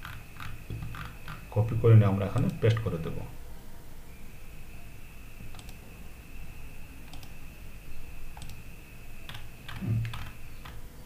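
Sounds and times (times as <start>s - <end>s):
faint high-pitched tone: 0.6s - 10.6s
computer mouse clicks: 2.4s - 2.9s, 5.5s - 5.8s, 7.0s - 7.4s, 8.3s - 8.6s, 9.3s - 10.8s.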